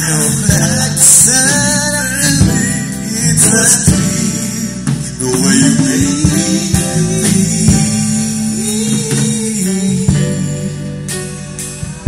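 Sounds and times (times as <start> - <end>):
person singing: 0.0 - 11.6
loud band music through pa: 0.0 - 12.0.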